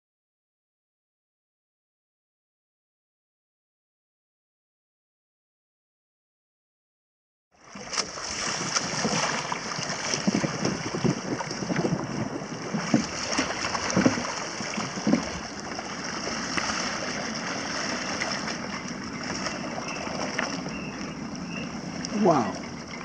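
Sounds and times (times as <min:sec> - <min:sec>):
water lapping and splashing: 0:07.6 - 0:23.0
wind buffeting microphone: 0:08.4 - 0:23.0.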